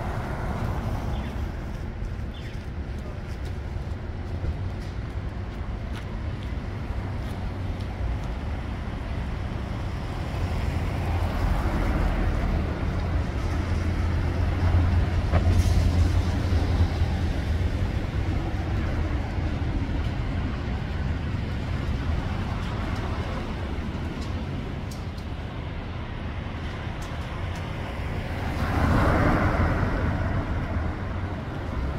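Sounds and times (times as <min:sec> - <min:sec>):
vehicle rumbling past: 0:27.8 - 0:31.9.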